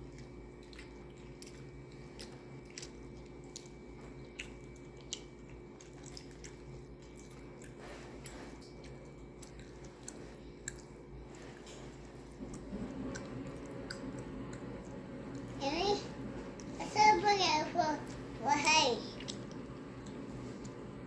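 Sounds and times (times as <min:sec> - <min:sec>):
chewing with wet mouth clicks: 0:00.0 - 0:15.6, 0:19.1 - 0:20.8
food squishing by hand: 0:00.0 - 0:16.8
steady low hum: 0:00.0 - 0:21.0.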